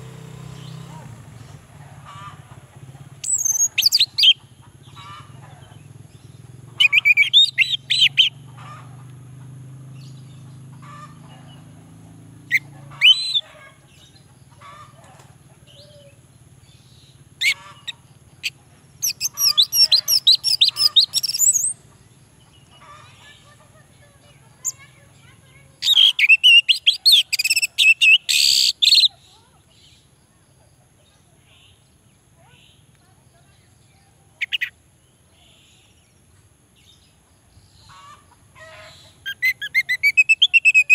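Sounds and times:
thrush singing whistled notes: 3.2 - 4.4, 6.8 - 8.5, 12.4 - 13.5, 16.9 - 21.8, 25.8 - 29.2, 39.2 - 40.9.

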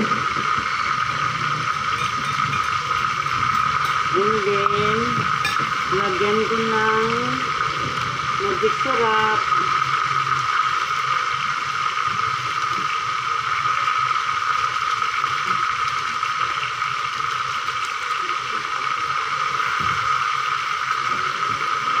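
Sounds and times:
food sizzling in a wok: 0.0 - 22.0.

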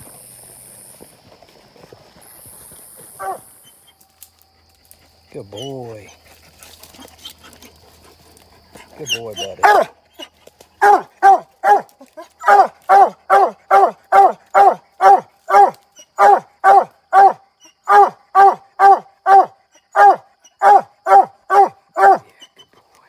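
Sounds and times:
dog barking rapidly: 3.2 - 3.4, 9.2 - 10.0, 10.8 - 22.3.

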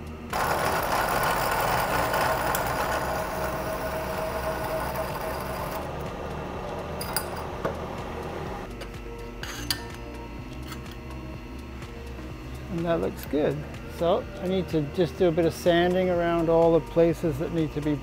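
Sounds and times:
milling machine spindle running: 0.2 - 9.3, 10.2 - 18.0
hole saw cutting steel tube: 0.3 - 6.1.

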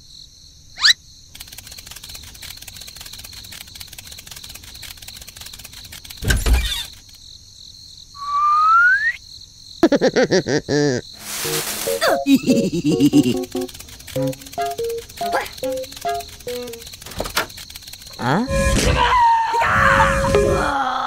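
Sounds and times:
crickets chirping: 0.0 - 21.0
fast pulsing sounds: 1.3 - 7.2, 11.2 - 19.1
rising whistle: 8.2 - 9.2, 18.3 - 20.8
slide whistle glide: 8.2 - 9.2, 18.3 - 20.7.

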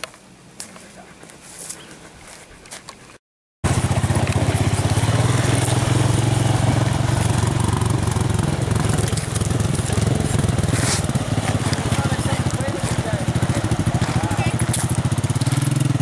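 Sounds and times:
atv engine puttering: 3.6 - 16.0.

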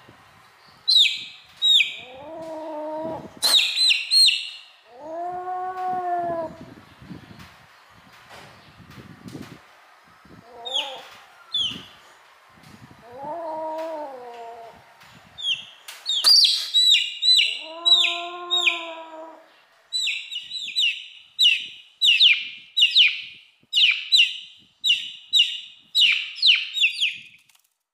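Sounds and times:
kitten meowing: 17.4 - 19.4.

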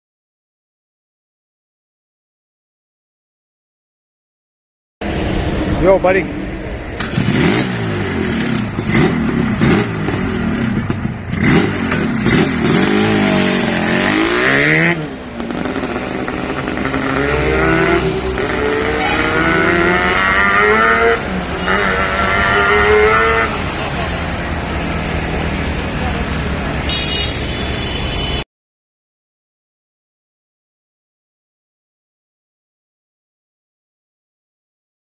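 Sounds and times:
scooter accelerating through gears: 7.0 - 23.9
scooter engine revving: 7.0 - 24.0.

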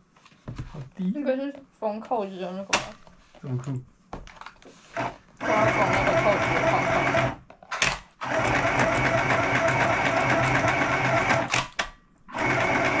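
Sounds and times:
electric sewing machine stitching: 4.9 - 13.0.

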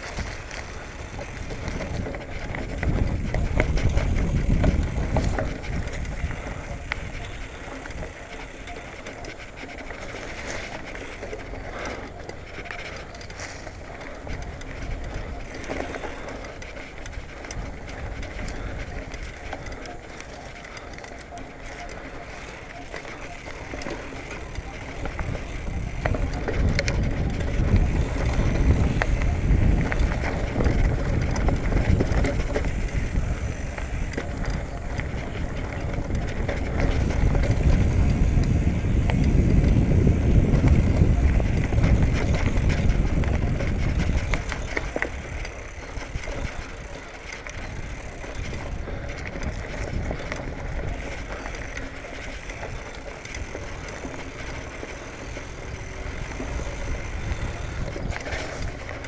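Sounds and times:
bike clicks and rattles: 0.0 - 59.0
bike tyres rumbling over dirt: 0.0 - 59.0.

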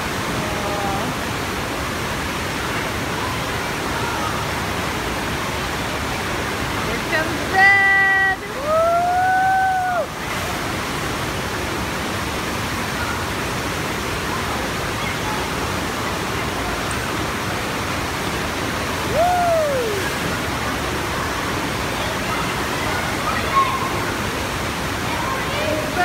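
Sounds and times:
water rushing: 0.0 - 26.0
person whooping: 8.6 - 10.1, 19.0 - 20.1.

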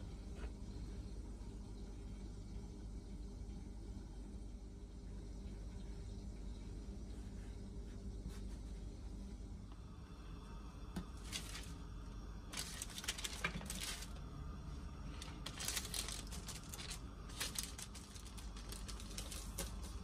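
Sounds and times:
baking paper crinkling: 11.1 - 11.8, 12.4 - 14.4, 15.0 - 20.0.

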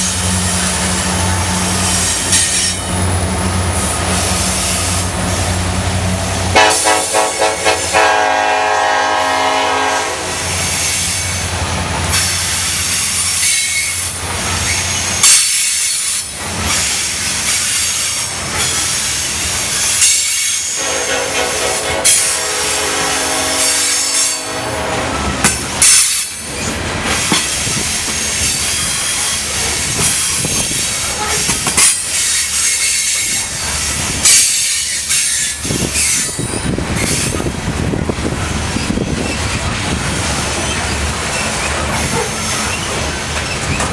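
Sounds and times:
train wheels rumbling: 0.0 - 43.9
locomotive horn: 6.5 - 10.7, 20.4 - 25.4
clickety-clack over rail joints: 10.6 - 20.8, 25.2 - 43.9
metallic clanks and squeals: 25.4 - 33.7.

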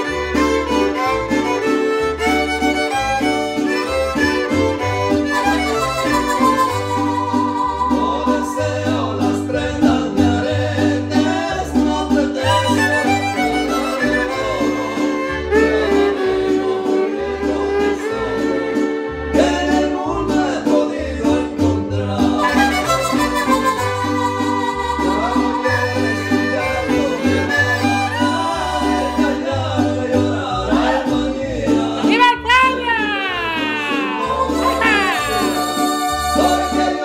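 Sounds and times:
violins bowing melody: 0.0 - 9.2, 12.4 - 19.9, 22.4 - 29.7, 32.1 - 37.0
deep bass notes: 0.0 - 37.0
strummed guitar rhythm: 0.0 - 37.0.

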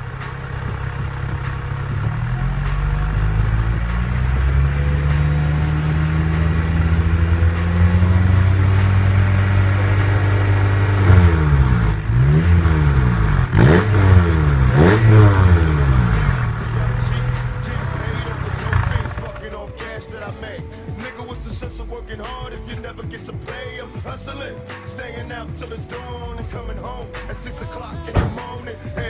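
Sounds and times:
car exhaust at steady revs: 0.0 - 19.5
engine throttle blips: 0.0 - 19.9.

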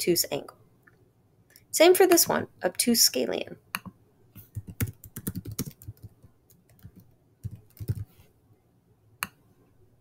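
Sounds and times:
computer keyboard key clicks: 4.6 - 8.0.

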